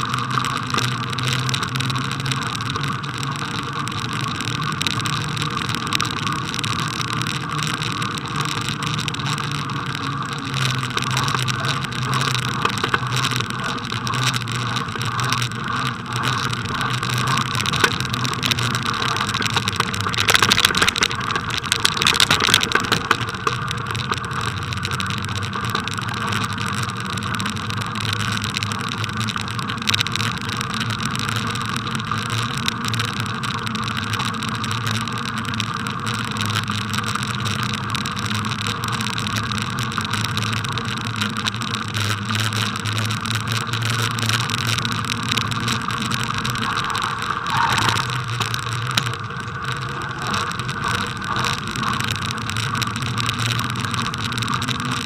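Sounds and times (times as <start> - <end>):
bicycle rattles and knocks: 0.0 - 55.0
bicycle tyres rumbling on snow: 0.0 - 55.0.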